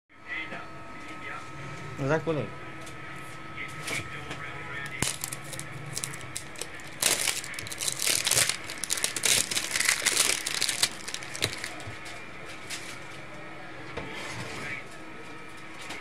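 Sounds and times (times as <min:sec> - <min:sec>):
plastic shrink-wrap crinkling: 0:04.9 - 0:12.8.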